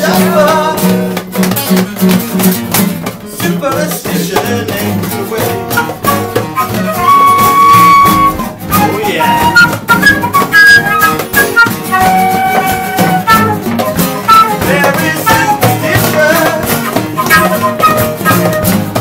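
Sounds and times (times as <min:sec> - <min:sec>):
strummed acoustic guitar: 0:00.0 - 0:19.0
woodwind melody: 0:05.6 - 0:19.0.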